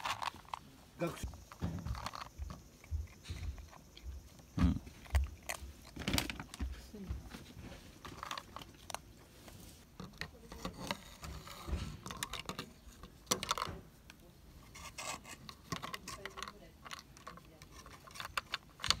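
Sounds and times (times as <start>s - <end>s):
kitten chewing food: 0.0s - 6.8s.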